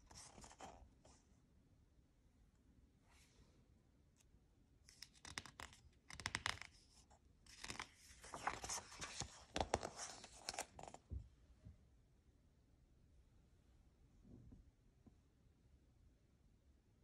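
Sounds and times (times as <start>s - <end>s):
book pages rustling: 0.0s - 0.8s, 7.5s - 11.0s.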